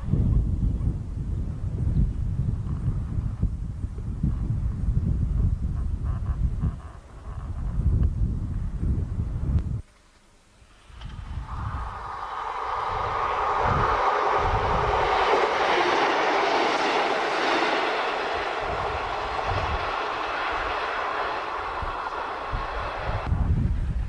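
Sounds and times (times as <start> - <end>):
diesel train passing: 10.8 - 23.4.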